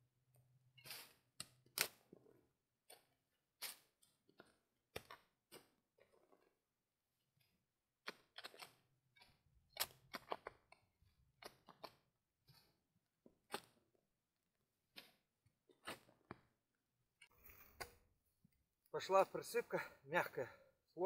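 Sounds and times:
spade scraping soft soil: 0:00.8 - 0:01.3.

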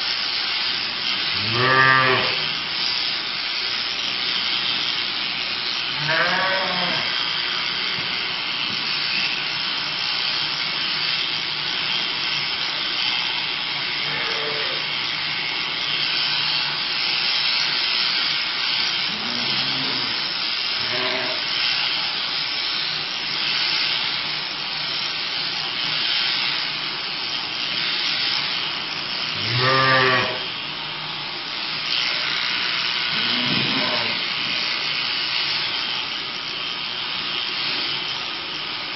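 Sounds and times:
shearing handpiece buzzing: 0:00.0 - 0:38.9
sheep bleating: 0:01.4 - 0:02.4, 0:05.9 - 0:07.2, 0:14.0 - 0:15.0, 0:19.1 - 0:20.2, 0:20.8 - 0:21.5, 0:29.4 - 0:30.5, 0:33.1 - 0:34.3.

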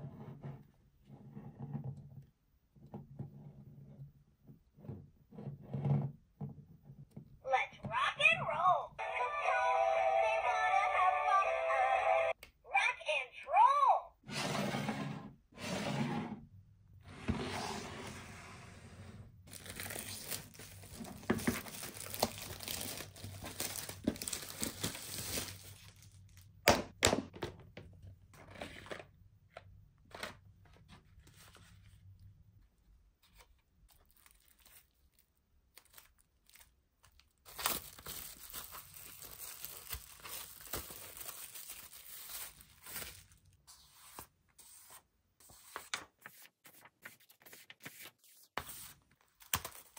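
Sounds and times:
packaging torn and crinkled: 0:19.5 - 0:26.6, 0:33.9 - 0:43.6.

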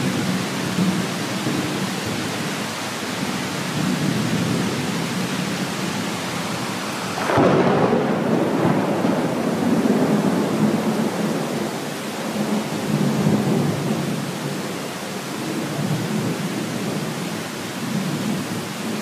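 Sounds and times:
heavy rain: 0:00.0 - 0:19.0
thunder rumbling: 0:03.7 - 0:14.4.

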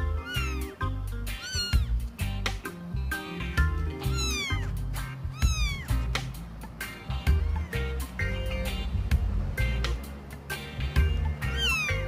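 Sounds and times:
kitten meowing: 0:00.0 - 0:02.1, 0:03.9 - 0:06.1, 0:11.4 - 0:12.0
background music: 0:00.0 - 0:12.0.

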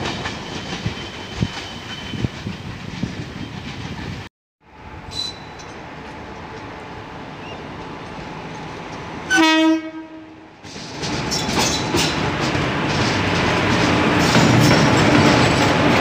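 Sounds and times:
train rumble: 0:00.0 - 0:16.0
train horn blast: 0:09.3 - 0:10.5.

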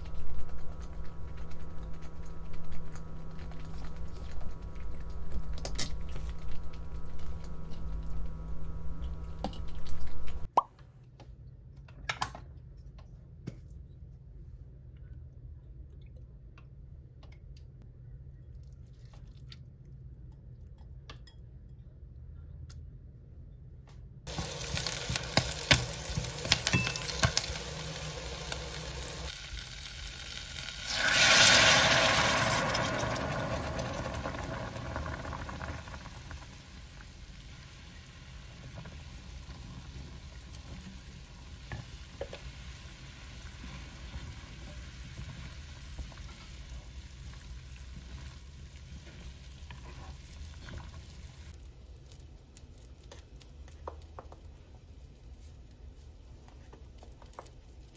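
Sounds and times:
food sizzling in a pan: 0:00.0 - 0:10.5, 0:24.3 - 0:51.6.

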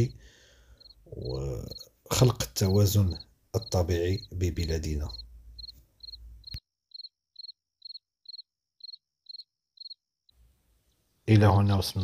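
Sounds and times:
crickets chirping: 0:00.7 - 0:10.0.

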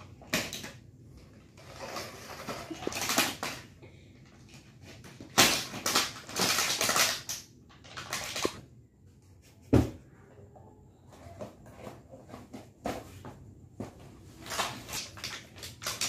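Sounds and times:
plastic packaging rustling: 0:00.0 - 0:08.8, 0:13.8 - 0:16.0.

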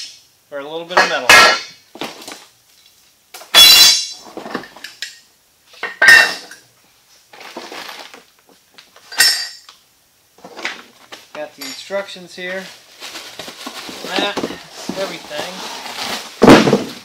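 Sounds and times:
bubble-wrap rustling: 0:07.3 - 0:08.4, 0:12.2 - 0:17.0.

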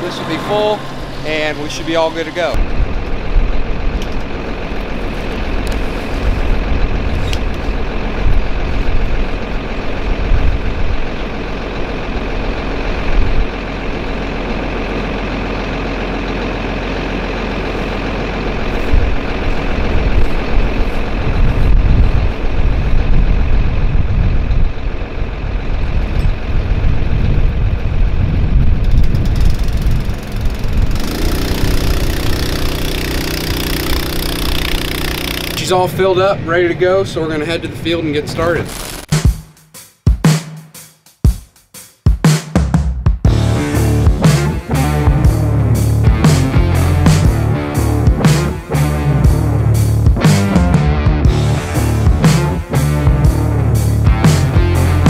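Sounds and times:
low hum: 0:00.0 - 0:39.1, 0:43.3 - 0:55.0
low rumbles: 0:00.0 - 0:39.2, 0:43.2 - 0:55.0
pump motor running: 0:28.9 - 0:35.9.

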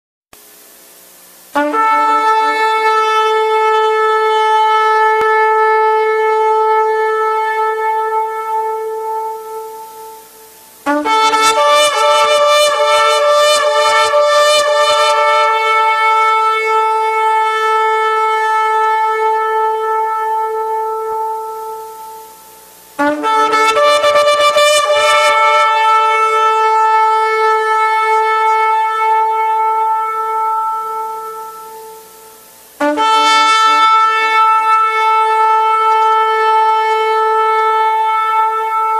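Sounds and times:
ram's horn blasts: 0:01.5 - 0:38.9.

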